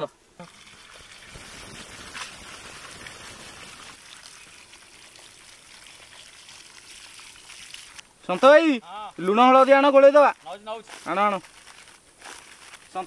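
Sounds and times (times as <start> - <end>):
faint trickling water: 0.4 - 8.1.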